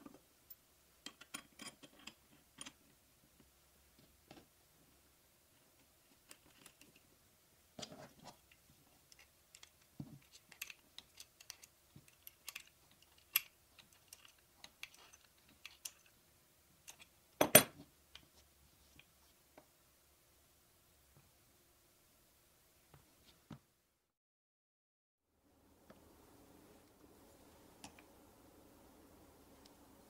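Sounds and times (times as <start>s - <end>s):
small metallic clicks and taps: 8.3s - 16.2s.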